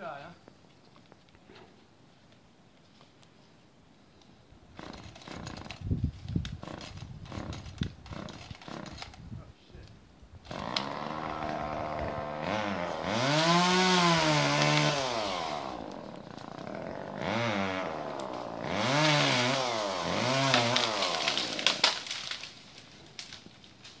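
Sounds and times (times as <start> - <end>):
chainsaw engine revving: 6.6 - 9.0, 10.5 - 22.4.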